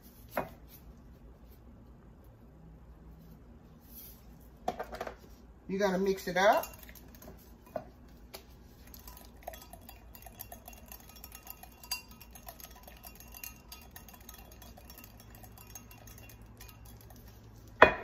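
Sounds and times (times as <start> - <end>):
spatula scraping glass bowl: 8.8 - 17.8.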